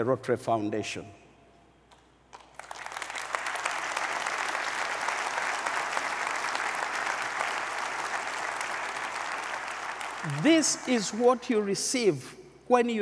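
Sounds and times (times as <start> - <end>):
audience applauding: 2.3 - 11.2.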